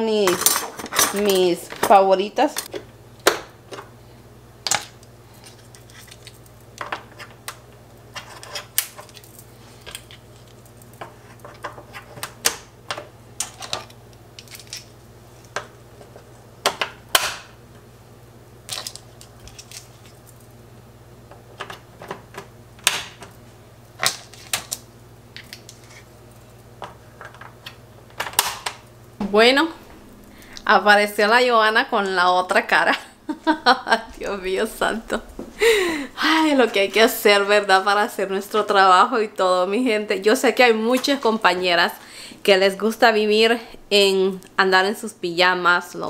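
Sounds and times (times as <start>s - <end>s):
low hum: 28.9s - 38.4s.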